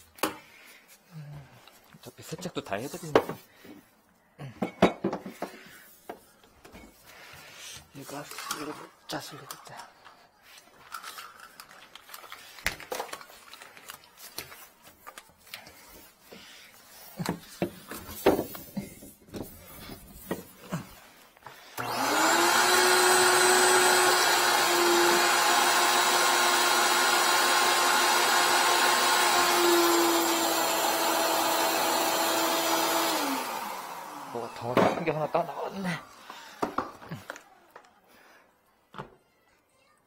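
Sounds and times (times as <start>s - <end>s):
vacuum cleaner whining: 21.4s - 38.4s.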